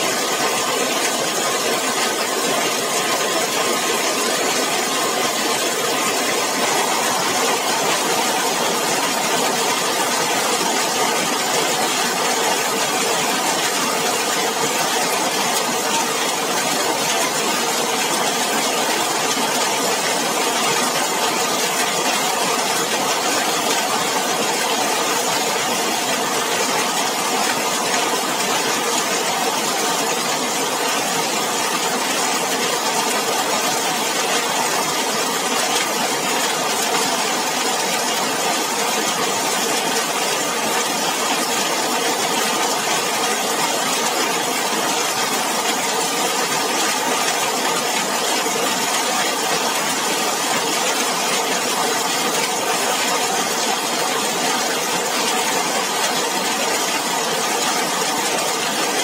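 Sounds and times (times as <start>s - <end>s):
heavy rain on a metal roof: 0.0s - 59.0s
rain splashing on wet paving: 0.0s - 59.0s.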